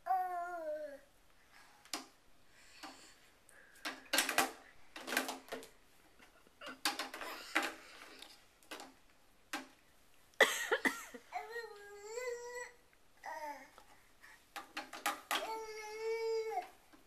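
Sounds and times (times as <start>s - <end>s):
baby babbling: 0.0s - 1.1s, 11.3s - 13.8s, 15.4s - 16.7s
toy car clattering and rattling: 3.8s - 5.7s, 6.7s - 8.9s, 14.6s - 15.6s.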